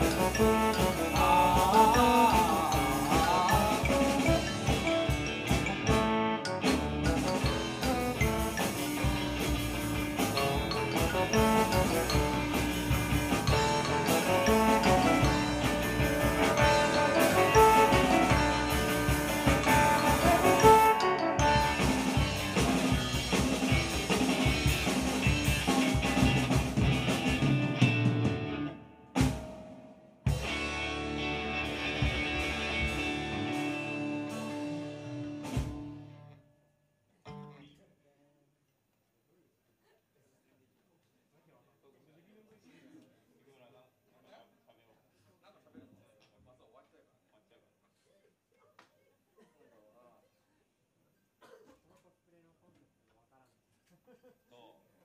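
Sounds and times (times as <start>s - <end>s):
quiet electric guitar playing: 0.0s - 29.1s, 30.3s - 36.4s
instrumental rock band playing: 0.0s - 36.3s.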